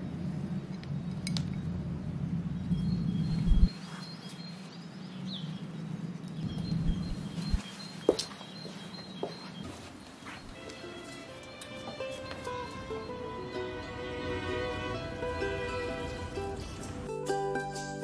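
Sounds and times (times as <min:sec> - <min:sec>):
small birds chirping: 0:00.0 - 0:10.6.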